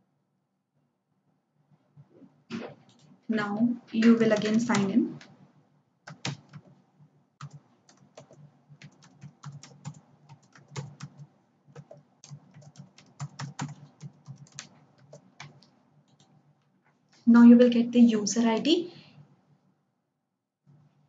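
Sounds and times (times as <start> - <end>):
computer keyboard typing: 4.0 - 5.4, 6.1 - 6.8, 7.4 - 16.4.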